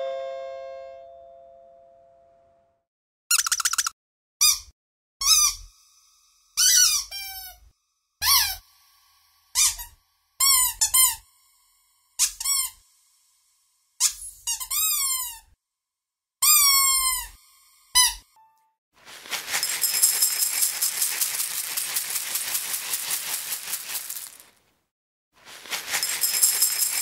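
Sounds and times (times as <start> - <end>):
squeaky dog toy: 3.3 - 5.7, 6.6 - 8.6, 9.6 - 11.2, 12.2 - 12.8, 14.0 - 15.6, 16.4 - 18.6.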